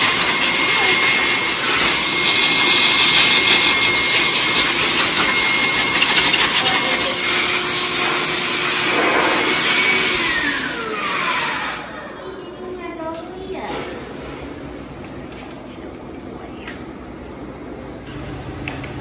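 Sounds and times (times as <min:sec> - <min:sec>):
high motor whine: 0:00.0 - 0:12.2
dryer blowing air: 0:00.0 - 0:19.0.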